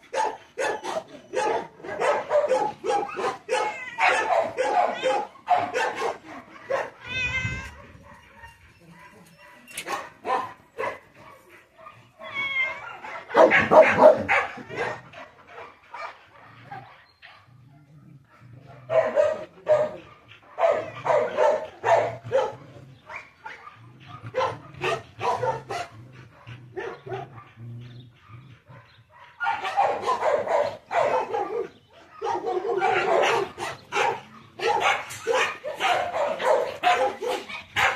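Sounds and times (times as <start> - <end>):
dog growling: 23.9 - 28.8.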